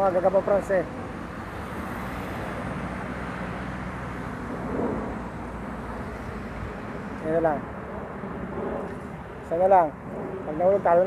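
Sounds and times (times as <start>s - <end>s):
road traffic hum: 0.0s - 11.0s.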